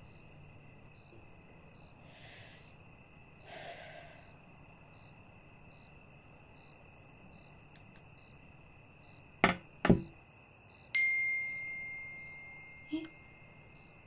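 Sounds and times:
faint high whine: 0.0s - 14.0s
woman breathing out: 2.0s - 2.8s, 3.4s - 4.4s.

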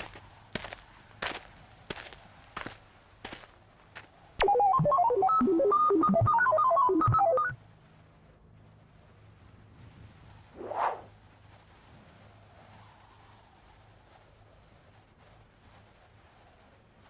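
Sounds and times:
electronic ringtone tune: 4.4s - 7.6s.

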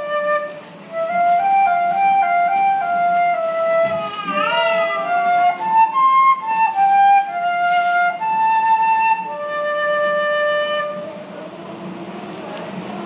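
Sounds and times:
solo flute melody: 0.0s - 13.0s.

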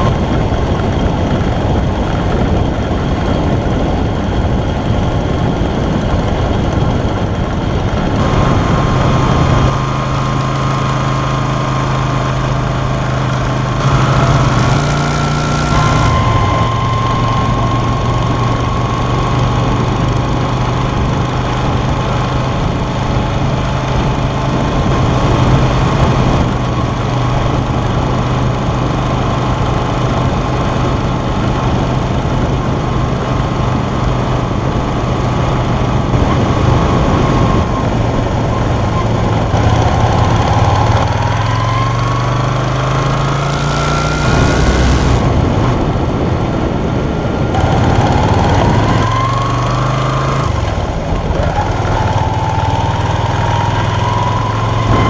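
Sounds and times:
motorcycle engine while riding: 0.0s - 55.0s
wind rushing: 43.8s - 49.5s.

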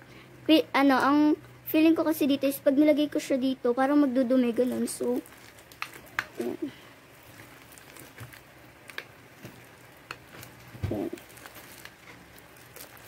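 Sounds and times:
slime squelching: 3.9s - 13.0s.

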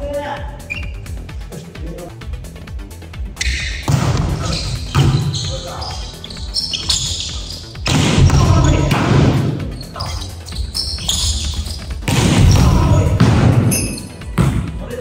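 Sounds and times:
players calling out: 3.4s - 14.3s
volleyball smacking gym floor: 3.7s - 5.6s, 6.8s - 9.6s, 11.1s - 14.8s.

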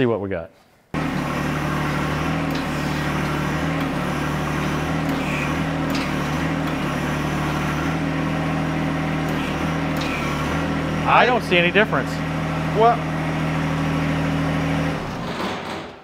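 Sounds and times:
tractor diesel engine running: 1.0s - 15.8s.

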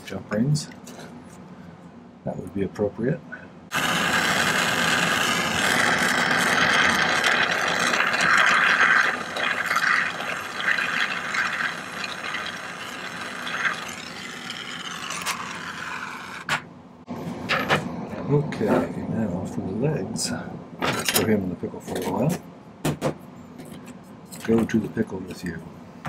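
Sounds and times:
torch flame hissing: 3.7s - 16.6s.

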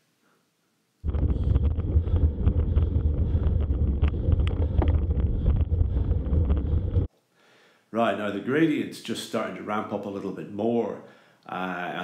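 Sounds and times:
wind buffeting microphone: 1.0s - 7.1s.

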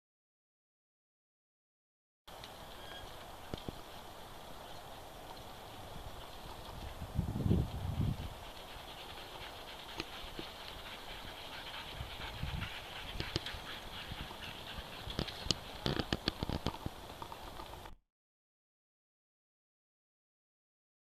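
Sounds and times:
faint steady hiss: 2.3s - 17.9s
paws and wheels crunching on dirt: 2.3s - 18.0s.

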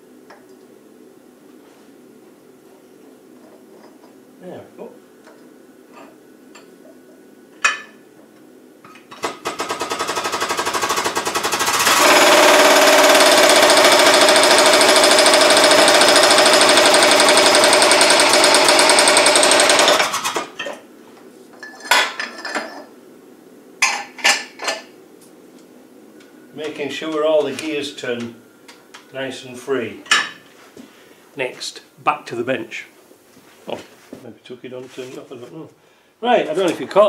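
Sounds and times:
hydraulic press pump chattering: 9.4s - 20.5s.

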